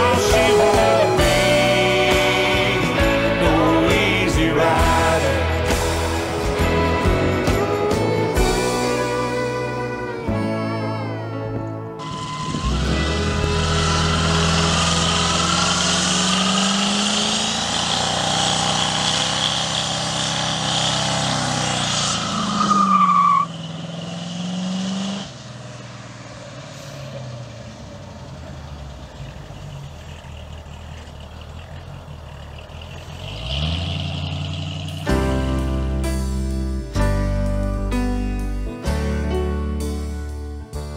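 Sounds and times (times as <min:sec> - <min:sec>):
engine revving hard: 0:12.0 - 0:25.6, 0:32.2 - 0:35.4
tire spinning and squealing: 0:12.0 - 0:35.1.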